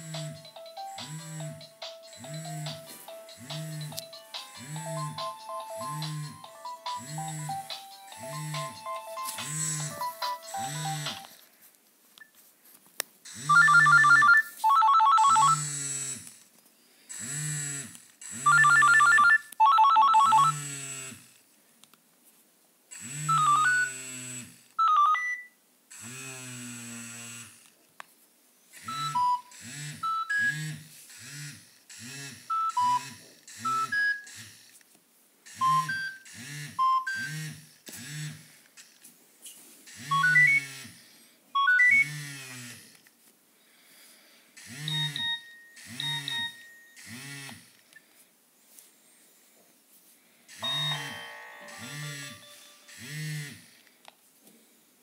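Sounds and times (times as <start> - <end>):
phone message alert tones: 0.1 - 11.3, 13.4 - 15.6, 18.5 - 20.6, 50.6 - 53.0.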